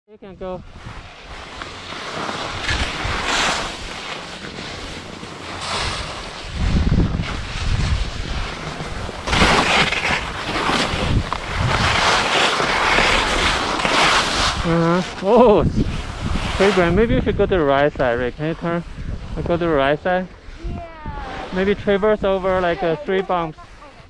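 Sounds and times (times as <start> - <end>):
skis scraping over snow: 0.2 - 24.0
wind buffeting microphone: 5.5 - 9.6, 10.2 - 12.2, 15.4 - 24.0.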